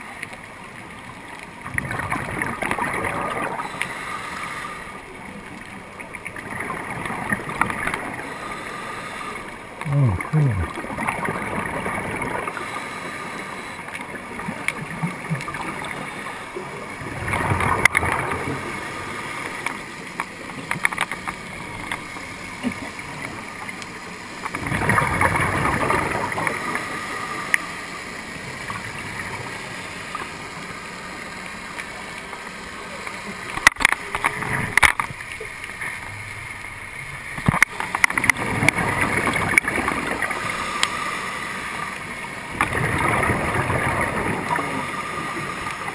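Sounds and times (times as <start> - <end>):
steady hiss: 3.4 - 5.7, 7.4 - 10.8, 12.2 - 14.5, 15.1 - 17.0, 25.2 - 34.6, 35.2 - 42.6, 43.5 - 45.9
underwater regulator bubbling: 6.4 - 13.8, 14.4 - 19.8.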